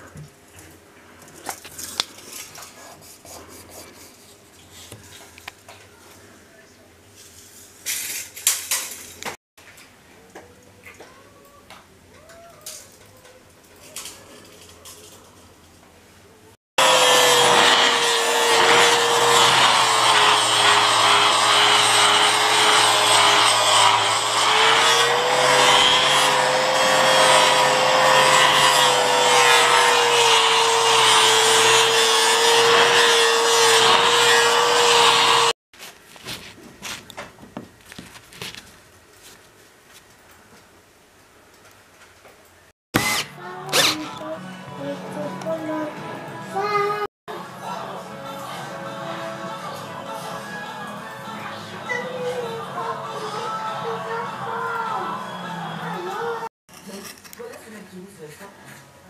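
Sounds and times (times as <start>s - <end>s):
angle grinder sanding wood: 16.8s - 35.6s, 43.0s - 45.3s.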